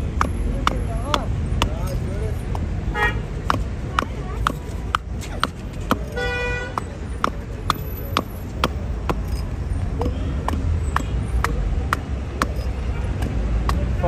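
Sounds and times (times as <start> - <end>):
hatchet striking wood: 0.0 - 14.0
traffic rumble: 0.0 - 14.0
car horn toot: 2.9 - 3.3, 6.1 - 6.8.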